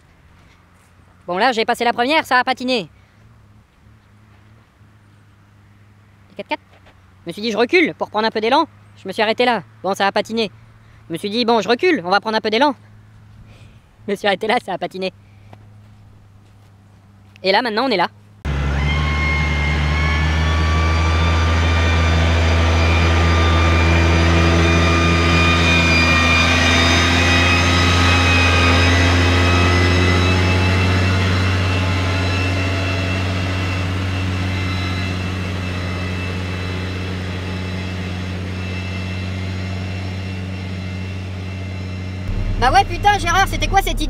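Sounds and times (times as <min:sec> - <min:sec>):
high whine: 0:18.5 - 0:40.5, 0:42.2 - 0:44.0
tractor diesel engine under load: 0:18.5 - 0:44.0.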